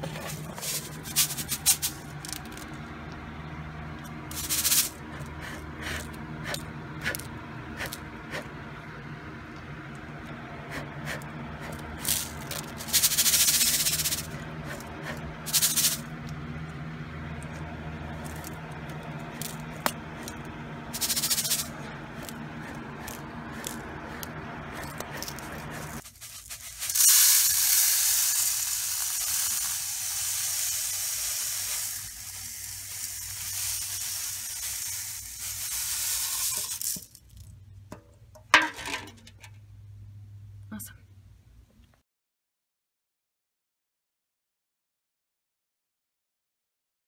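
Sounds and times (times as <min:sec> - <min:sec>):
seeds rattling in metal pan: 0:00.0 - 0:02.8, 0:04.3 - 0:08.0, 0:11.1 - 0:16.2, 0:18.0 - 0:37.6
low steady hum: 0:00.0 - 0:27.7
seeds pouring into steel bowl: 0:00.3 - 0:02.8, 0:04.3 - 0:06.1, 0:11.2 - 0:16.1, 0:18.1 - 0:37.4.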